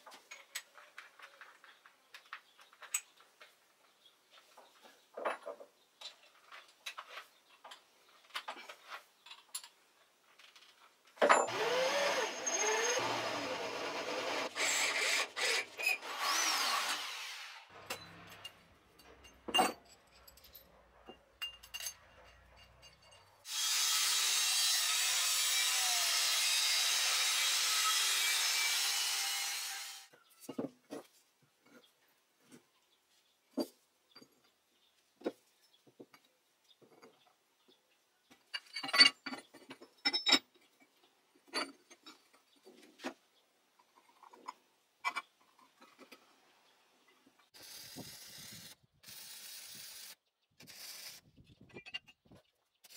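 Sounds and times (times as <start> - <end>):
power tool on metal: 11.5 - 17.7, 23.4 - 30.1
abrasive saw cutting steel: 11.5 - 18.5, 23.4 - 30.1.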